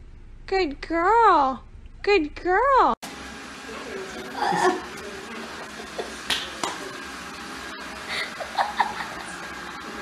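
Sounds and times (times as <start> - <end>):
robot vacuum running: 3.0 - 10.0.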